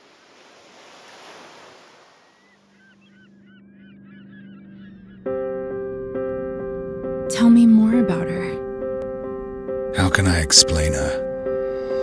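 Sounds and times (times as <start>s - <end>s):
waves washing: 0.0s - 2.4s
flock of birds chirping: 2.0s - 5.6s.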